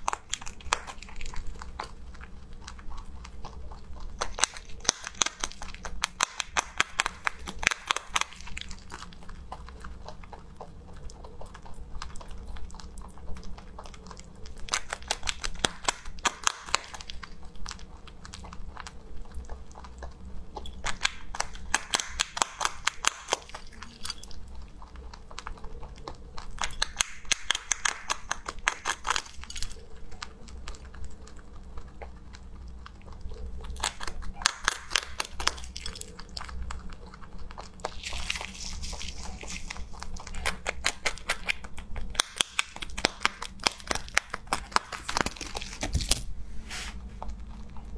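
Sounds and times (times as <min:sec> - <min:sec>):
rabbit chewing softly: 0:00.0 - 0:47.9
rabbit crunching biscuit: 0:00.0 - 0:47.9.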